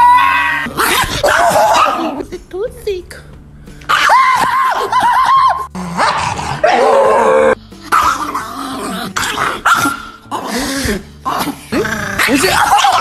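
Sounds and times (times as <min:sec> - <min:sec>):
small dog growling and yapping: 0:05.8 - 0:13.0.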